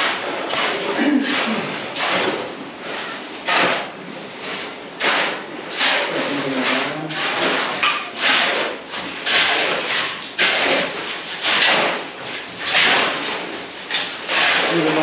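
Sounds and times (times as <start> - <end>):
shovels scraping gravel: 4.4 - 15.0.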